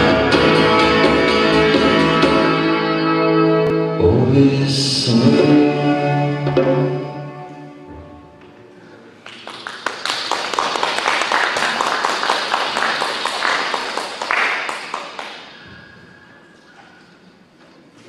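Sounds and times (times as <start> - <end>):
audience applauding: 9.2 - 15.8.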